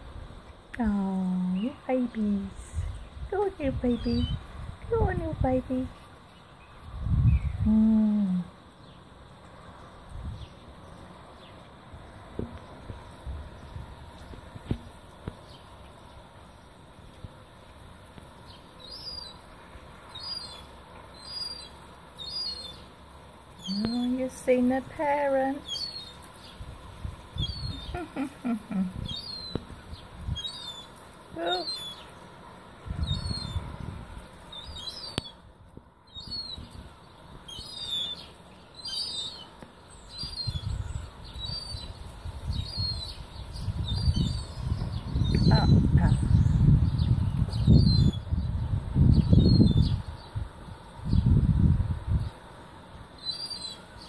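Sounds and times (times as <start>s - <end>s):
young gulls begging calls: 27.4s - 29.6s, 30.3s - 32.1s, 43.9s - 46.7s.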